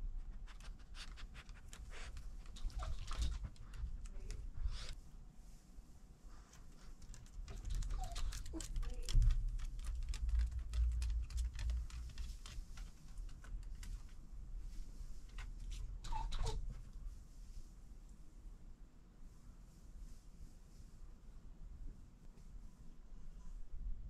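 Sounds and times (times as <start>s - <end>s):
dog claws clicking on wooden boards: 7.0s - 14.0s.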